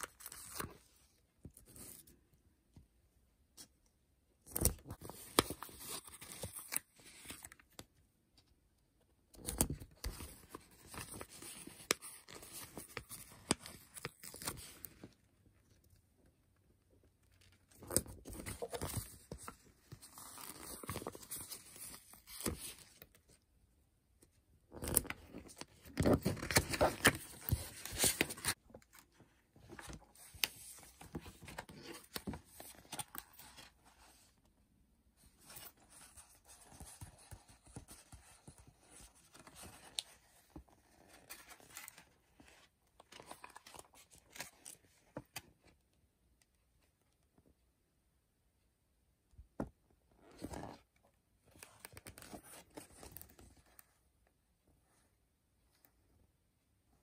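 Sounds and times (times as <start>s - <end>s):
paper pages turned and crinkling: 0.0s - 2.1s, 4.4s - 7.9s, 9.4s - 15.1s, 17.4s - 23.2s, 24.7s - 34.4s, 35.2s - 45.5s, 51.5s - 53.9s.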